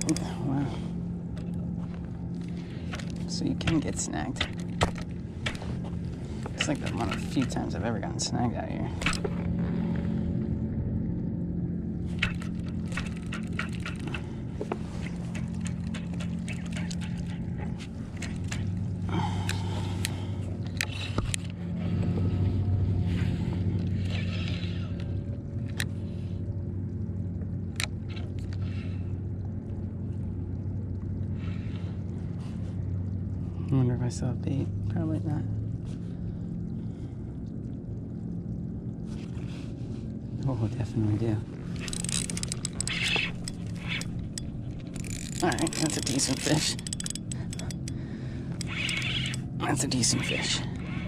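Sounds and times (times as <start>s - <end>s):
low hum: 0.0s - 51.0s
fishing reel clicks and scrapes: 41.8s - 49.5s.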